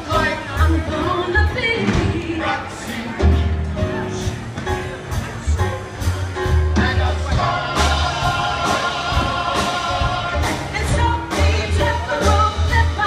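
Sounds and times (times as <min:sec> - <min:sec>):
woman singing: 0:00.0 - 0:03.3, 0:10.6 - 0:13.0
live band playing: 0:00.0 - 0:13.0.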